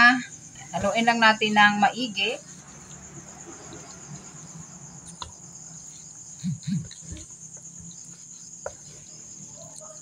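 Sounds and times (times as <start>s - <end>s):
crickets chirping: 0.0s - 10.0s
soft thumps: 6.8s - 9.2s.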